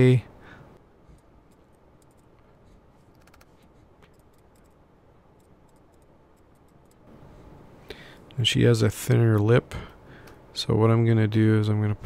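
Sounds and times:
low room hum: 0.0s - 12.0s
computer mouse clicks: 1.2s - 2.4s, 3.0s - 4.8s, 5.4s - 7.1s.

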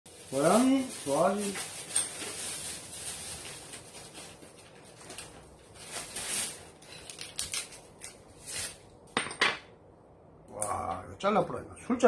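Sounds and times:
plastic packet crinkling: 0.1s - 8.8s.

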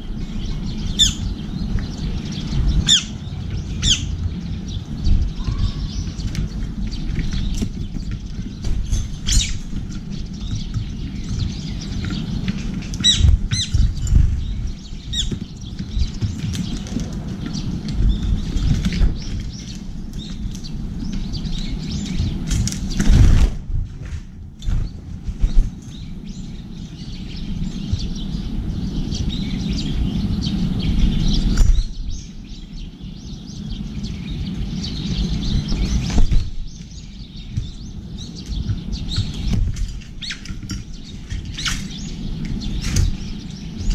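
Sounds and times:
soft bird chirps: 0.0s - 23.3s, 24.6s - 43.9s
sharp falling bird calls: 0.0s - 23.7s, 24.6s - 43.9s
low rumble: 0.0s - 43.9s
birds pecking and landing: 0.4s - 29.3s, 33.7s - 43.9s
wing flutters: 3.8s - 26.1s.

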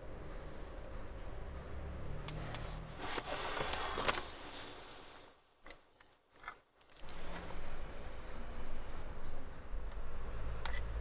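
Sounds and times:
rubbing and scraping small parts: 5.7s - 7.6s, 9.9s - 11.0s.

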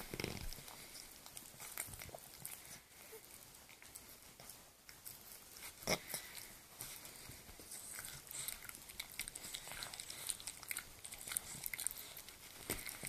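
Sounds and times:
dog chewing and licking: 0.0s - 13.0s.

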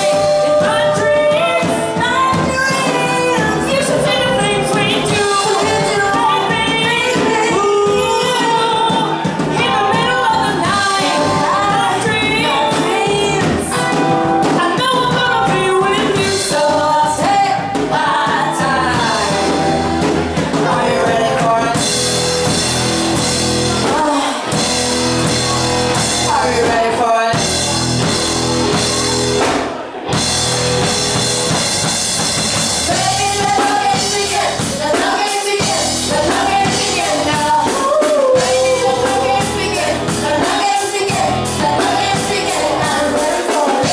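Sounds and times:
person singing: 0.0s - 22.0s, 32.8s - 43.9s
rock band playing: 0.0s - 43.9s.

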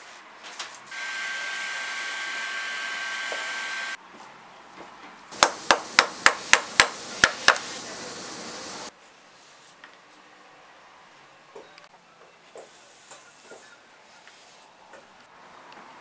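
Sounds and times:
electric blower whining: 0.9s - 4.0s.

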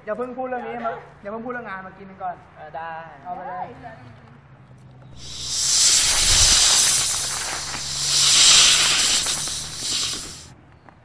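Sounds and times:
snake hissing: 5.2s - 10.5s.

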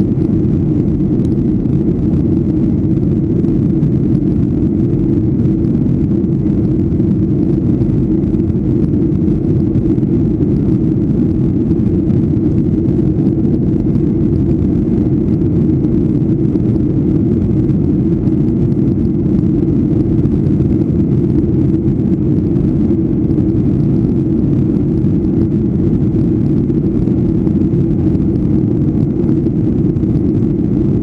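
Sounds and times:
airliner cabin drone: 0.0s - 31.0s.

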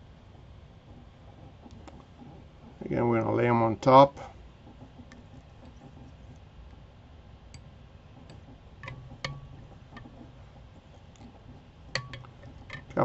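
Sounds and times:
clicks and taps at a vise: 7.5s - 13.0s.

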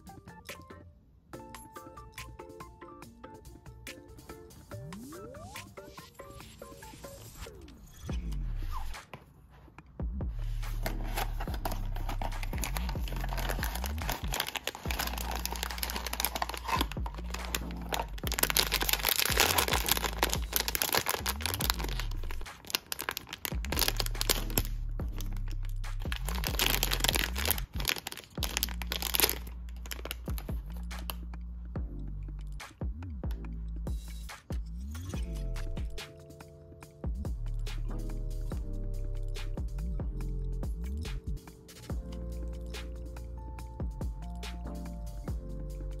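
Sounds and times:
background music with bass line: 10.0s - 46.0s
plastic bag crinkling and tearing: 10.8s - 30.5s.

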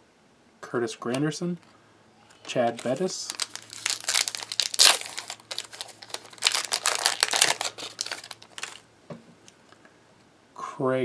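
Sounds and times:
foil wrapper crinkling and tearing: 2.6s - 8.8s.

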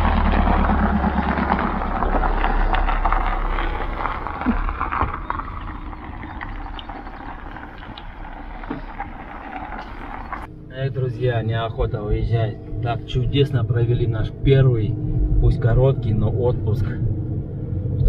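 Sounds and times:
tyres on gravel: 0.0s - 10.5s
car engine running low: 0.0s - 18.0s.

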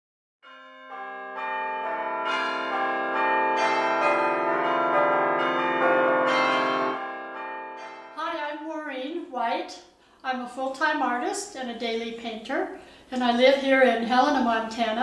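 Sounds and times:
bells ringing: 0.4s - 9.6s.

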